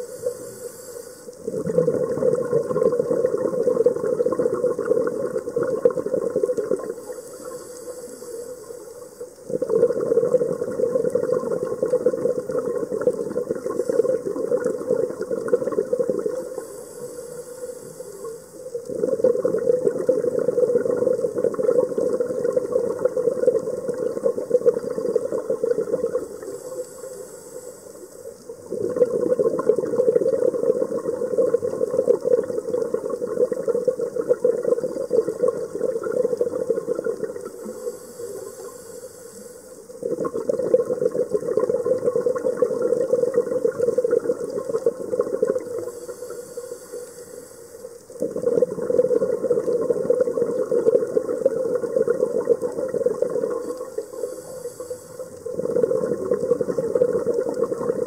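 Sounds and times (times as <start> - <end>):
hissing regulator inhalations: 0.0 - 1.4, 6.9 - 9.3, 16.4 - 18.8, 26.2 - 28.3, 37.5 - 40.0, 45.7 - 48.1, 53.5 - 55.8
bubbling regulator exhalations: 0.0 - 58.0.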